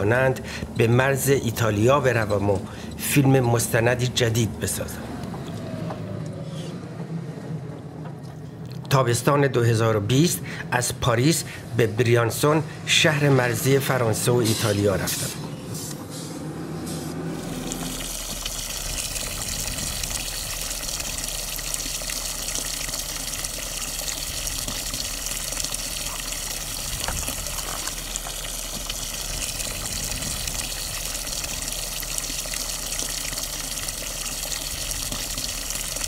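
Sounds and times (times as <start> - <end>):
water pouring into wooden trough: 17.2 - 36.0.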